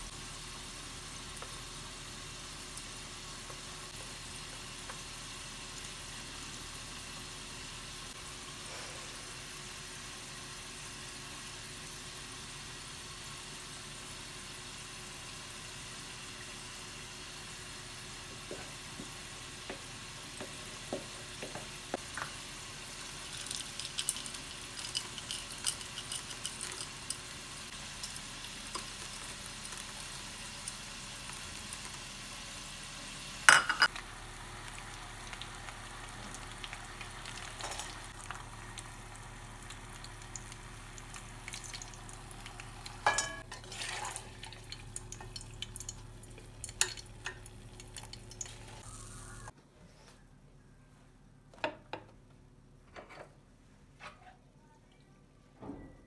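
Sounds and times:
potato wedges sizzling in oil: 0:00.0 - 0:49.5
metal skimmer clinking on pan: 0:43.0 - 0:43.4.

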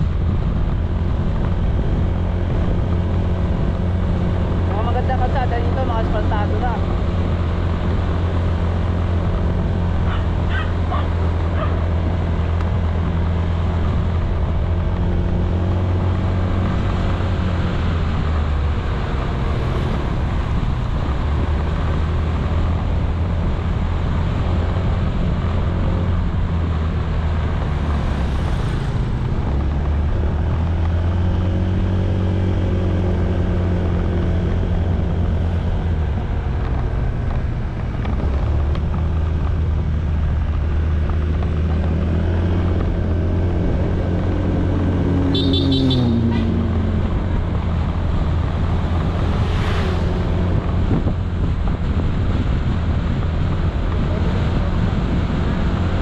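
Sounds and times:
road and wind noise: 0:00.0 - 0:56.0.

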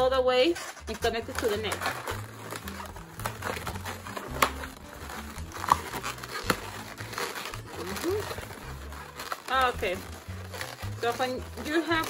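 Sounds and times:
balloons rubbing and squeaking: 0:00.0 - 0:12.0.

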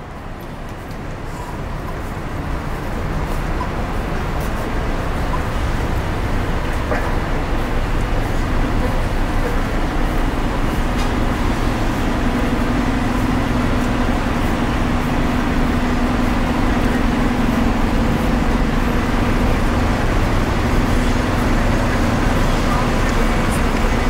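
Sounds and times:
bus engine hum: 0:00.0 - 0:24.0
traffic rumble: 0:00.0 - 0:24.0.

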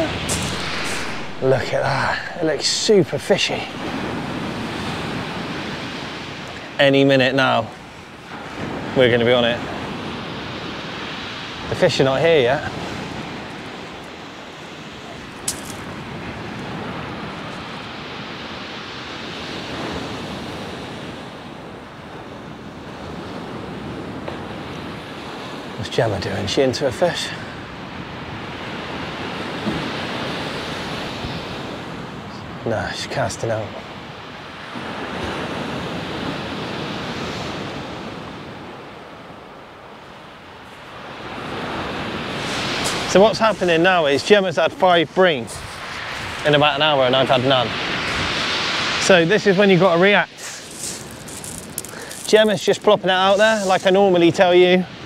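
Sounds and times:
surf breaking on shingle beach: 0:00.0 - 0:21.5, 0:40.6 - 0:55.0
wind buffeting microphone: 0:33.8 - 0:54.0.

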